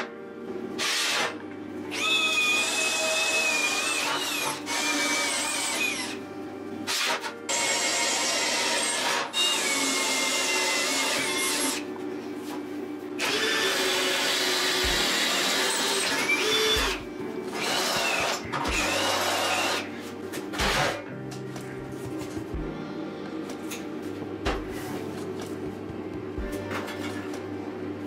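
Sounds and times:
power drill squealing through steel: 15.4s - 17.0s.

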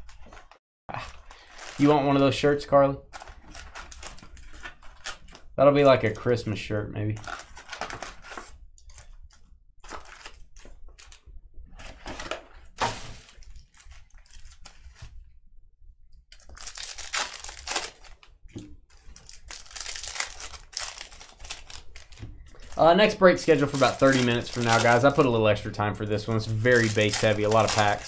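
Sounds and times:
wrapper crinkling: 0.0s - 2.2s, 7.2s - 11.2s, 11.8s - 15.1s, 16.3s - 25.4s, 26.2s - 28.0s
wrappers tearing: 1.0s - 2.0s, 16.3s - 18.3s, 18.9s - 25.3s, 26.4s - 28.0s.

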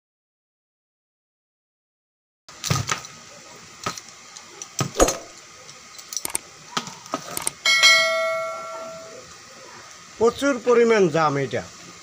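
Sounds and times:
short metallic ring: 7.6s - 9.2s.

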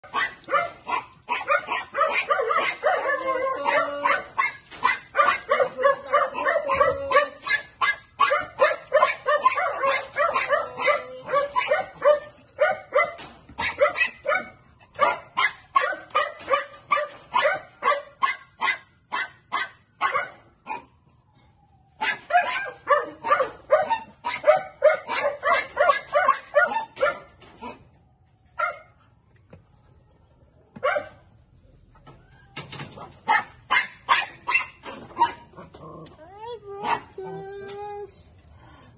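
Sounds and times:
small dog barking: 0.0s - 20.9s, 22.0s - 27.8s, 30.8s - 31.2s, 33.2s - 35.5s.

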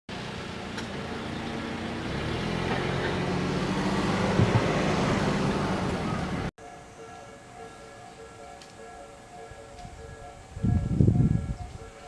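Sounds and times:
vehicle engine rumbling: 0.1s - 12.0s
short thumps: 4.3s - 4.8s.

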